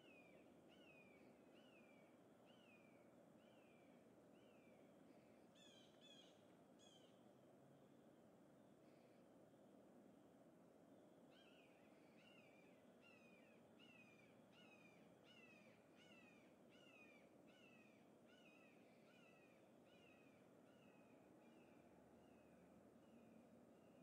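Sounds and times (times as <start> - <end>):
low background hiss: 0.0 - 24.0.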